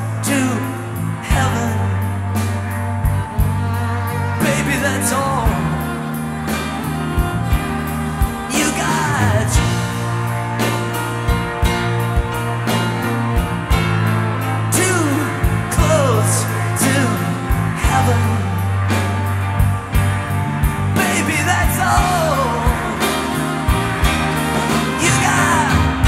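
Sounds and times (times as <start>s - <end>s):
rock music: 0.0s - 26.0s.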